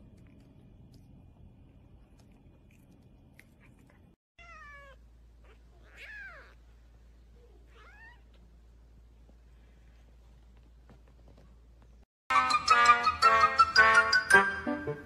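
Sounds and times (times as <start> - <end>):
cat meowing: 4.4 - 6.6, 7.7 - 8.3.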